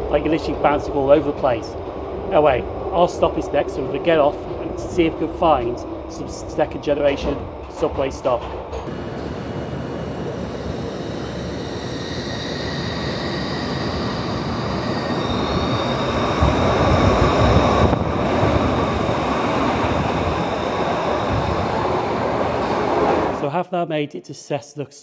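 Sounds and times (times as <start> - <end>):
wheel and rail rumble: 0.0 - 23.4
train whine rising in pitch: 8.9 - 23.4.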